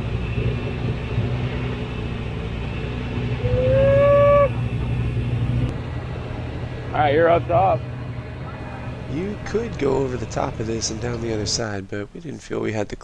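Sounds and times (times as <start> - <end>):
car engine running under load: 0.0 - 11.8
loud high held tone: 3.4 - 4.6.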